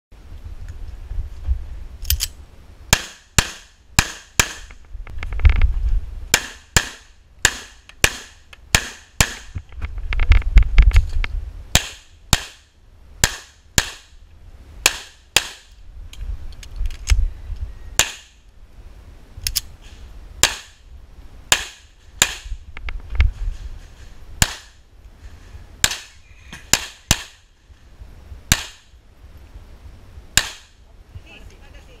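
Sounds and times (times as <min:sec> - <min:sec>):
low microphone rumble: 0:00.2 - 0:02.9, 0:04.7 - 0:06.4, 0:09.5 - 0:13.2, 0:15.7 - 0:26.8.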